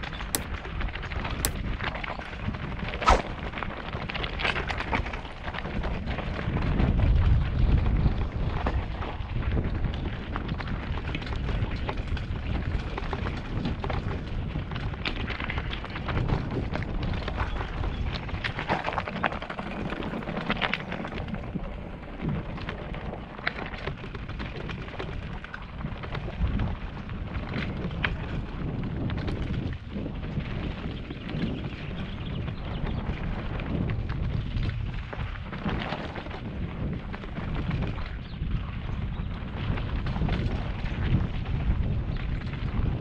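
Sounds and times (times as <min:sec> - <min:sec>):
wind rumble on microphone: 0:00.0 - 0:43.0.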